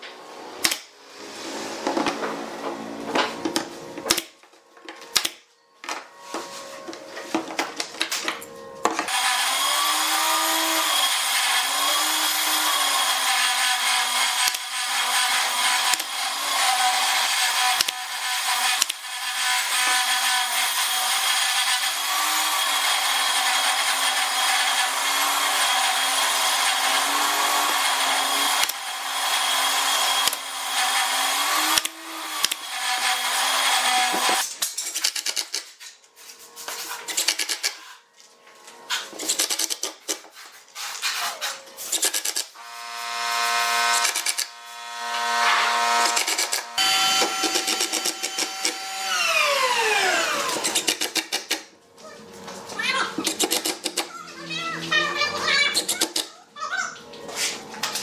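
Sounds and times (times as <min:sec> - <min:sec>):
nail gun firing: 0:00.6 - 0:00.9, 0:41.9 - 0:42.5, 0:43.9 - 0:44.5, 0:46.0 - 0:49.0, 0:50.3 - 0:51.6, 0:53.2 - 0:54.1.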